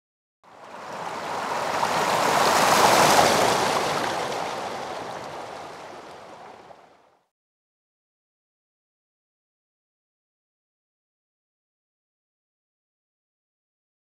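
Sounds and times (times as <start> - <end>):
rush of noise: 0.5 - 6.7.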